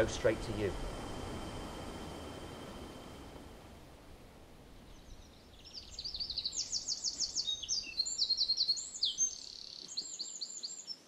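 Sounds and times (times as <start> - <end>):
songbird singing trills: 4.6 - 11.0.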